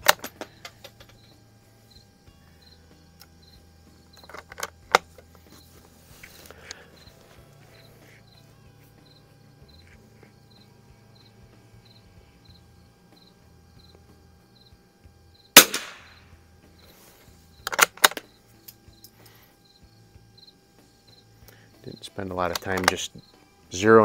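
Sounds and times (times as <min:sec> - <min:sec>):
crickets chirping: 0:00.0 - 0:24.0
rifle shot with echo: 0:15.6 - 0:16.2.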